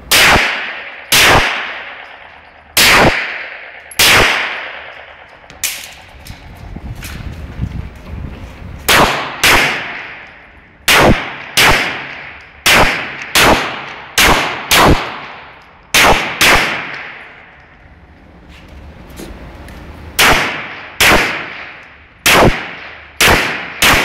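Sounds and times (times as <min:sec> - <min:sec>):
pistol shots ringing indoors: 0:00.1 - 0:06.0, 0:08.9 - 0:17.6, 0:20.2 - 0:24.0.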